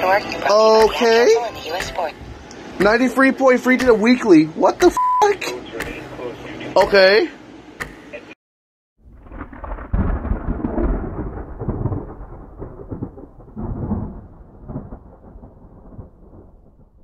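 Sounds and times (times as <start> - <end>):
low rolling rumble: 9.0 - 17.0.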